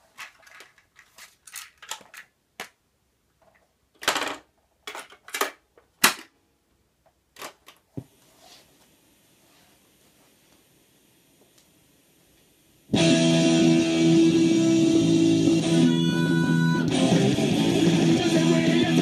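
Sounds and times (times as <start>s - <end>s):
tape hiss: 5.7s - 19.0s.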